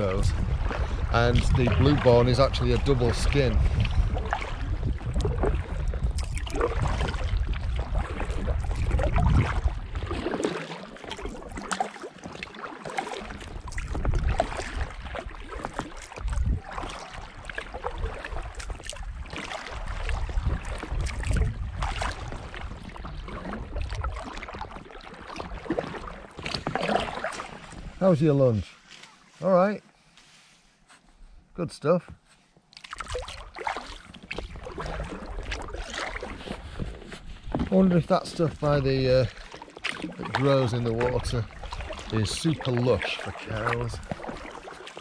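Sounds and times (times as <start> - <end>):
wind buffeting microphone: 0.0 - 10.2, 13.4 - 15.0, 16.2 - 23.0
paddle splashing and dripping: 0.0 - 29.4, 32.1 - 45.0.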